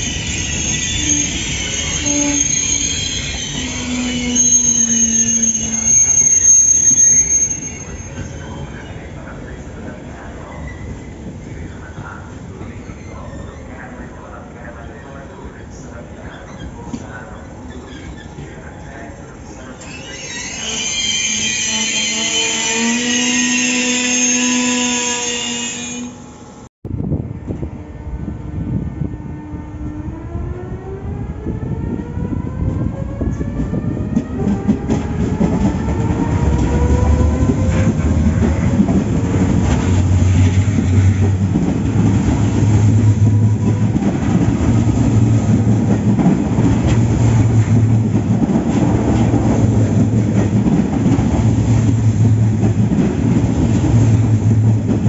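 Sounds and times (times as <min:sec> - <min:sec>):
train wheels squealing on rails: 0:00.0 - 0:09.3, 0:10.4 - 0:11.6, 0:12.5 - 0:14.0, 0:15.5 - 0:26.5
train rumble: 0:07.8 - 0:20.0, 0:26.2 - 0:55.0.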